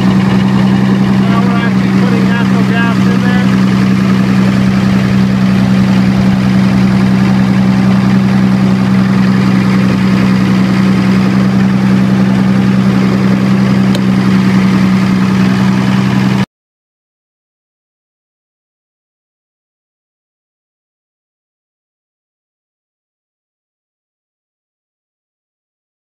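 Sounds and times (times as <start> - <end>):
diesel generator humming: 0.0 - 16.5.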